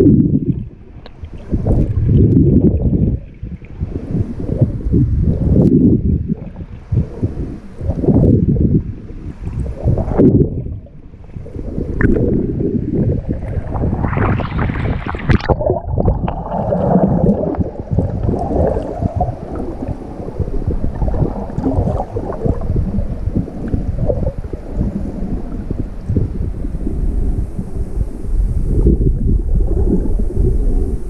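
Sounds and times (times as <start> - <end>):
choppy surface water: 0.0 - 31.0
water rushing underwater: 0.0 - 31.0
splashing: 13.3 - 24.3.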